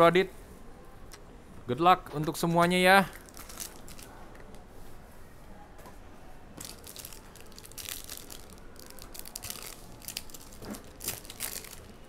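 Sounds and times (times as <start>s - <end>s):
foil pack crinkling and tearing: 3.2s - 4.1s, 6.6s - 12.0s.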